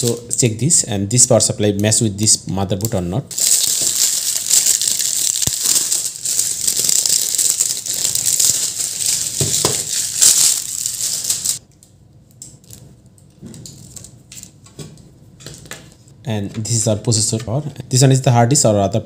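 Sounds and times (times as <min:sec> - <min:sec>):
plastic bag crinkling: 0:03.3 - 0:11.6.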